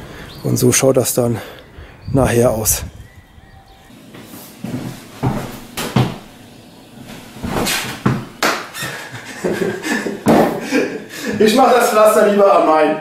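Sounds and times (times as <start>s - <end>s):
footsteps in a small room: 3.9s - 11.6s
handling knocks and thuds: 4.7s - 6.3s, 7.1s - 8.7s, 10.2s - 10.6s.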